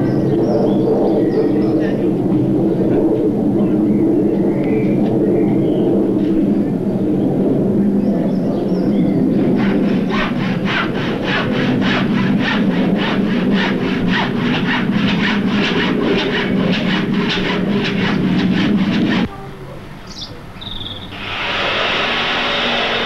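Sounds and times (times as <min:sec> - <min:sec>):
steady low hum: 0:00.0 - 0:23.0
handsaw cutting wood: 0:09.5 - 0:19.3, 0:21.2 - 0:23.0.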